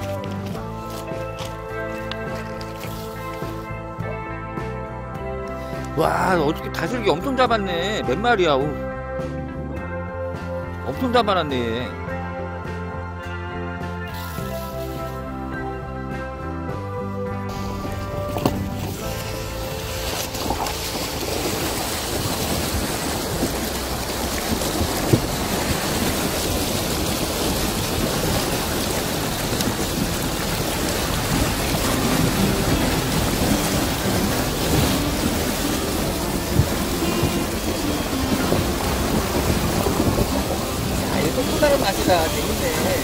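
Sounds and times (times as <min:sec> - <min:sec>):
river water rushing over stones: 0:00.0 - 0:03.7, 0:17.5 - 0:43.0.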